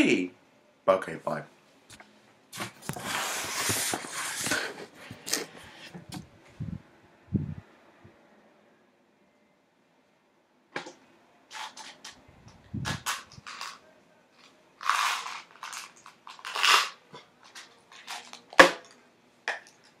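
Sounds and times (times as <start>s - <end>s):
rustling noises: 2.0s - 6.8s
clicks and crunching: 14.8s - 20.0s.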